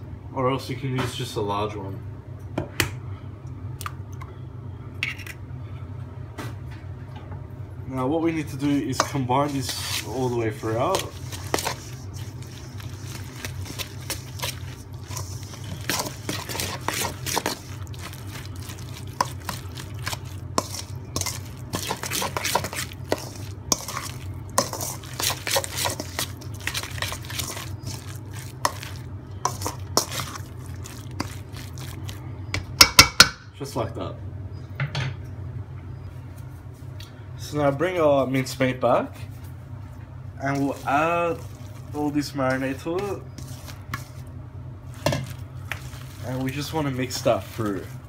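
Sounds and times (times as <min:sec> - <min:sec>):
steady low hum: 0:00.0 - 0:48.0
fork scraping metal bowl: 0:09.0 - 0:32.0.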